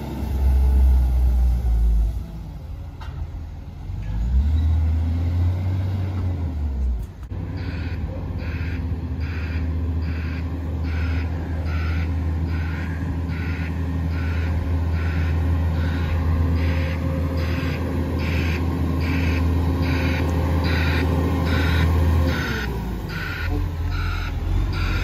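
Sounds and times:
garbage truck engine hum: 0:00.0 - 0:25.0
pulsing warning alarm: 0:07.6 - 0:25.0.

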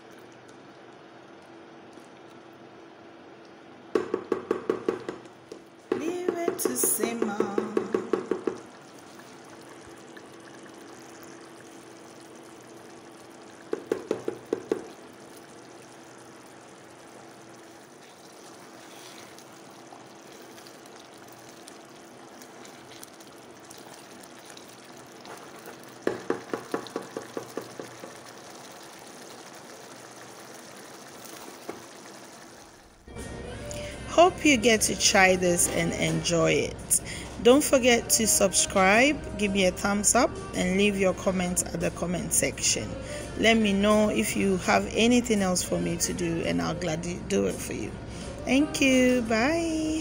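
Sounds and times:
sauce bubbling in a pot: 0:00.0 - 0:33.1
spoon tapping against a pot: 0:05.9 - 0:08.6.

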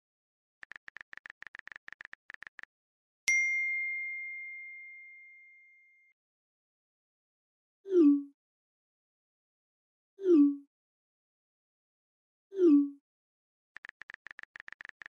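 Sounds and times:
smartphone keyboard taps: 0:00.6 - 0:02.7, 0:13.8 - 0:15.0.

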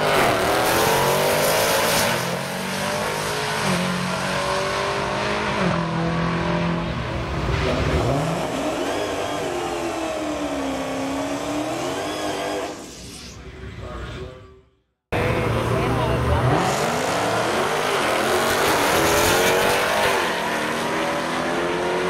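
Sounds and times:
drag car engines revving: 0:00.0 - 0:13.1, 0:15.2 - 0:22.0.

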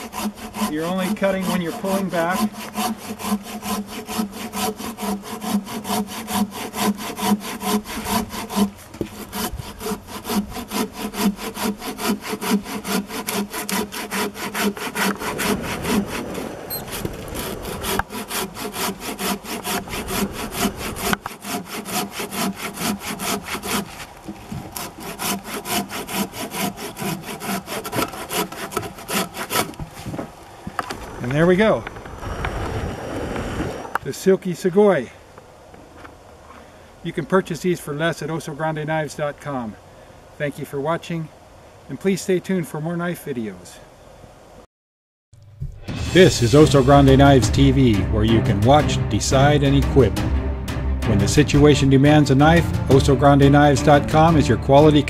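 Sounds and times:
hand saw cutting through log: 0:00.0 - 0:30.2.

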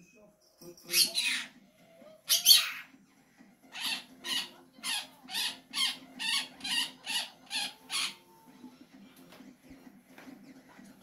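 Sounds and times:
parrot squawking: 0:00.9 - 0:01.6, 0:02.2 - 0:02.9, 0:03.7 - 0:08.4.

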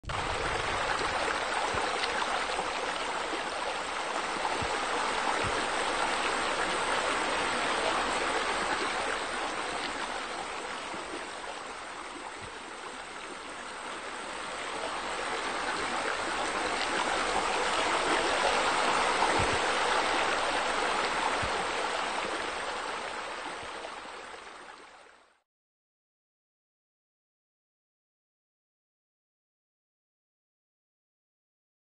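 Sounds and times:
running splashing water: 0:00.0 - 0:24.8.

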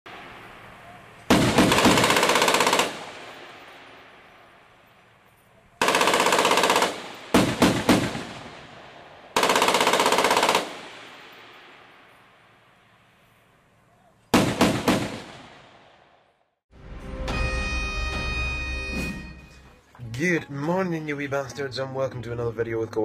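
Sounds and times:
gunfire echo: 0:00.8 - 0:04.8, 0:05.8 - 0:12.8, 0:14.3 - 0:16.4
automatic gunfire bursts: 0:01.3 - 0:03.4, 0:05.8 - 0:08.7, 0:09.4 - 0:11.2, 0:14.3 - 0:15.6.

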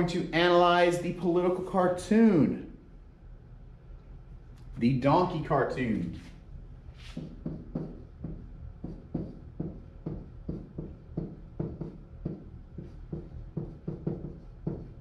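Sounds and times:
marker writing on whiteboard: 0:07.0 - 0:15.0.

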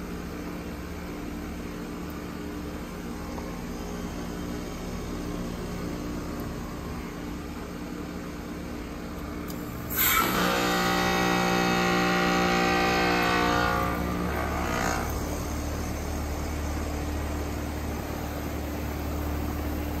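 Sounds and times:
compressor hum: 0:00.0 - 0:20.0
rushing hiss of refrigerant: 0:09.8 - 0:12.0.

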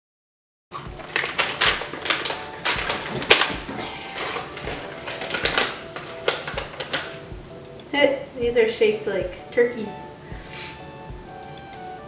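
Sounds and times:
plastic pouch crinkling: 0:00.8 - 0:07.3.

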